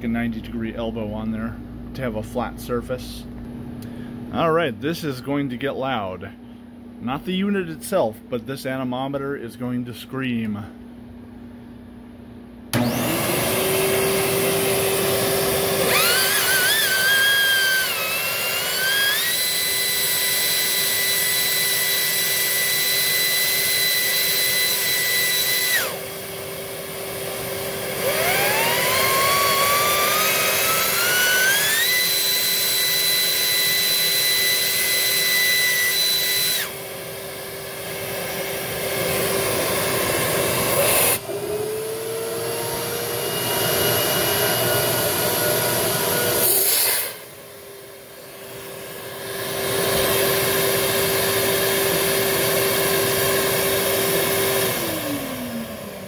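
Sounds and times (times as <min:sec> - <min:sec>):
vacuum motor hum: 0:12.7 - 0:56.0
shrill whine of spinning vane: 0:12.8 - 0:26.1, 0:28.0 - 0:46.5.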